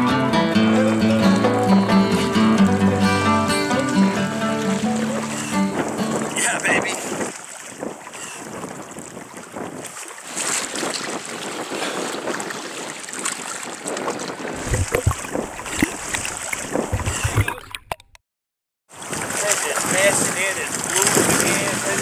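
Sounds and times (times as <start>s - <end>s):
sea water washing on rocks: 3.8s - 17.7s, 18.9s - 22.0s
wind on microphone: 4.9s - 17.6s, 19.2s - 22.0s
low buffeting thumps: 14.6s - 18.0s.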